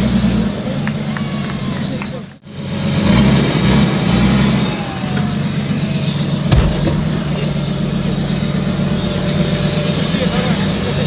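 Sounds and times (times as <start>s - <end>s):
truck engine at low revs: 0.0s - 11.0s
sharp knock: 6.5s - 8.3s.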